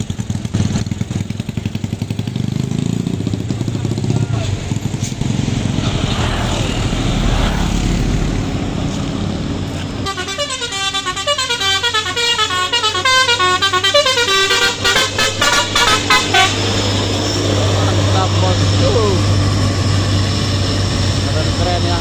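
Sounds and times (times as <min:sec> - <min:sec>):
truck engines and traffic: 0:00.0 - 0:22.0
musical truck horn: 0:09.8 - 0:17.1.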